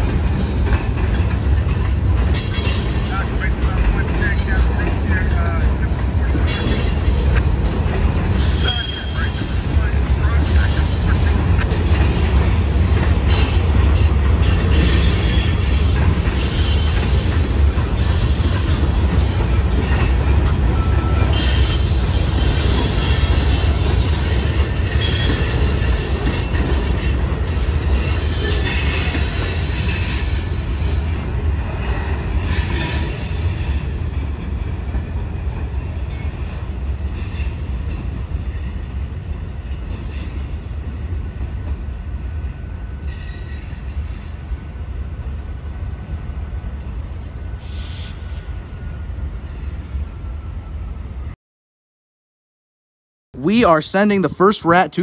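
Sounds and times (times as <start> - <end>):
freight train rumbling: 0.0 - 51.4, 53.4 - 55.0
train wheel squeal: 2.3 - 3.3, 6.4 - 7.4, 8.3 - 31.2, 31.8 - 34.0, 37.1 - 37.7, 42.2 - 44.4, 47.5 - 50.5.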